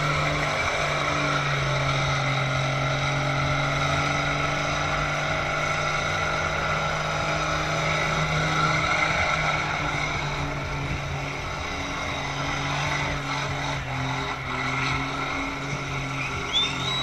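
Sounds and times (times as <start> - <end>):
car engine at high revs: 0.0 - 17.0
spinning tyres hissing: 0.0 - 17.0.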